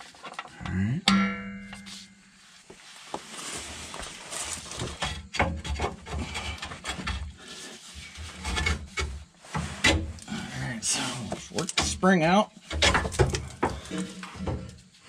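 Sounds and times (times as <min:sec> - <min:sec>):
metal scraping and rubbing: 0:03.3 - 0:12.1.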